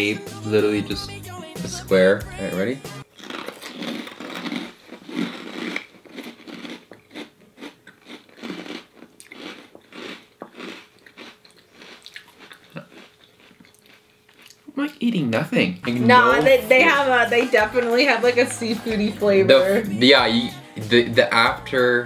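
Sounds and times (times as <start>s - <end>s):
people chewing crunchy crackers: 3.1s - 14.7s.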